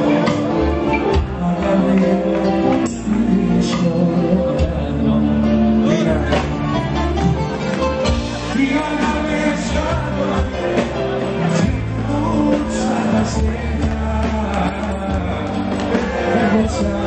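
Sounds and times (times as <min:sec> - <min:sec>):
man singing into a microphone: 0:00.0 - 0:06.6, 0:08.4 - 0:17.0
live band music: 0:00.0 - 0:17.0.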